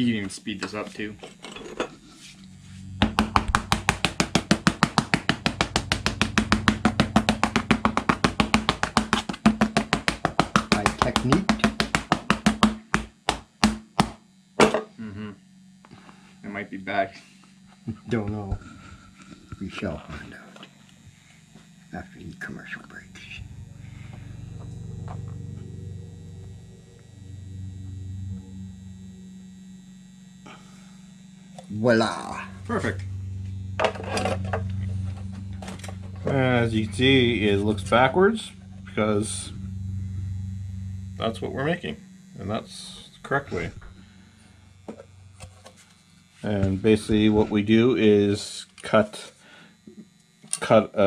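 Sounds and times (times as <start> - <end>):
low steady hum: 0.0 - 51.0
held low note: 1.9 - 9.0, 15.0 - 15.5, 21.7 - 48.5
fast percussive beat: 3.0 - 14.1.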